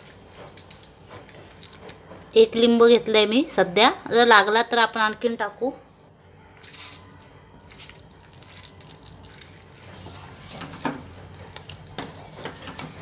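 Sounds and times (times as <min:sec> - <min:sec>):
spoon stirring in metal pan: 0:08.4 - 0:13.0.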